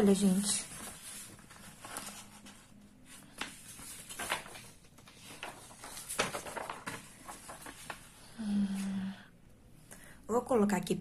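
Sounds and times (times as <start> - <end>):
paper rustling and creasing: 0.0 - 8.4.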